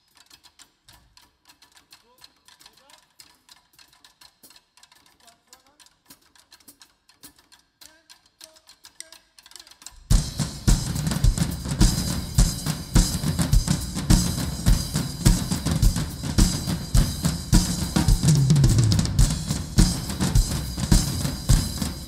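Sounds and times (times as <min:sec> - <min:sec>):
drums playing a steady beat: 0:09.9 - 0:22.0.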